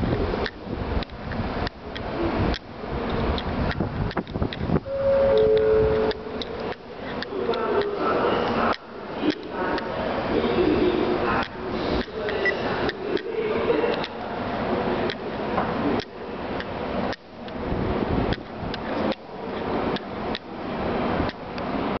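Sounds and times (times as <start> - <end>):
train running noise: 0.0 - 22.0.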